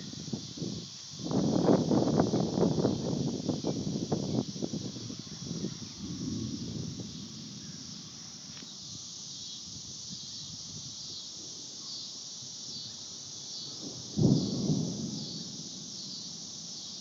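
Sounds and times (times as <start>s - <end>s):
faint insect chirps: 0.0s - 17.0s
insects droning: 0.0s - 17.0s.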